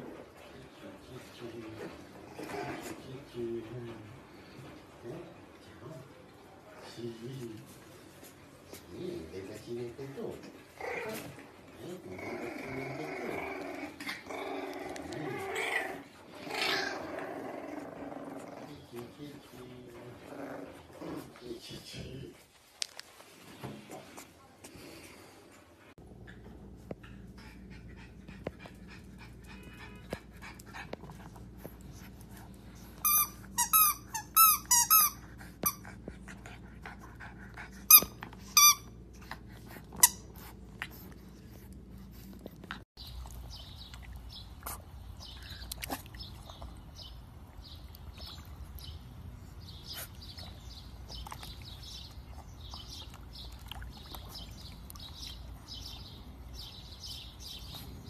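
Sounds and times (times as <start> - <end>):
faint birds chirping: 0.0 - 58.0
squeaky dog toy: 33.0 - 35.8, 37.9 - 38.9.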